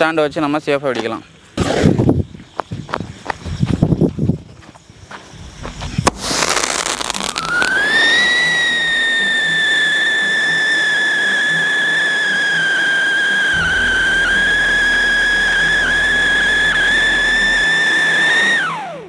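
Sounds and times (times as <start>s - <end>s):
firework crackling hiss: 5.2s - 18.8s
firework whistle rising: 6.1s - 19.0s.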